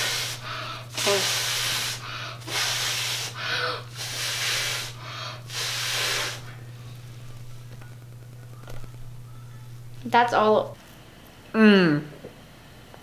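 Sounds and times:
towel scrubbing over face: 0:00.0 - 0:06.5.

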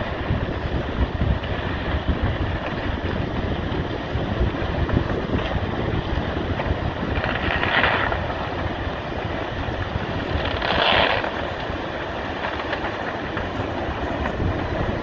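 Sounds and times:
landslide rumble: 0:00.0 - 0:15.0
wind buffeting microphone: 0:00.0 - 0:15.0.

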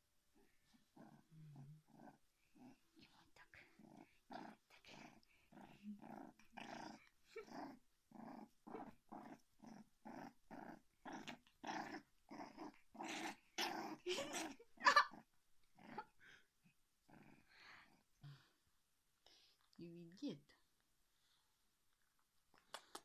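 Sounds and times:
puppy play-growling: 0:00.4 - 0:18.2.

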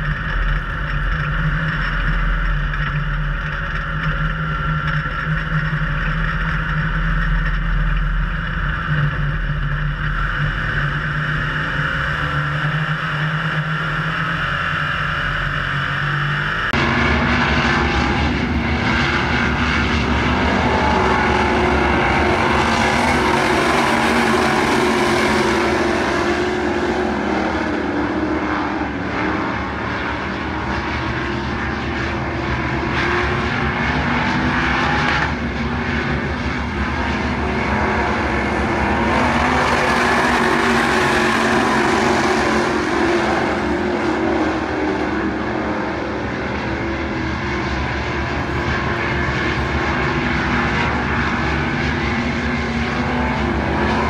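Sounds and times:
race car engines droning: 0:00.0 - 0:54.0.

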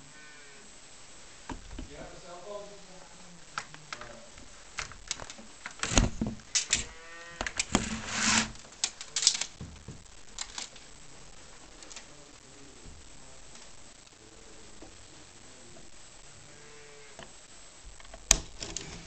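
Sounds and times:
rustle: 0:00.0 - 0:09.5, 0:15.6 - 0:19.0.

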